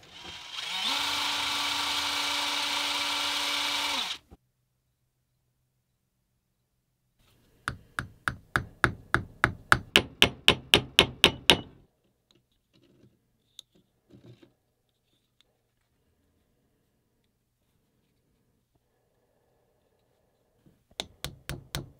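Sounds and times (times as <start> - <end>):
faint handling noises: 11.9 - 21.0.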